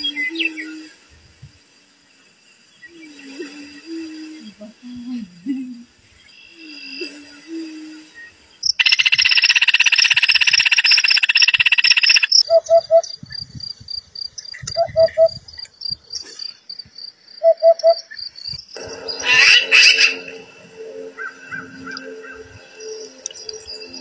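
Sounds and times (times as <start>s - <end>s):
dense buzzing trill: 18.8s - 24.0s.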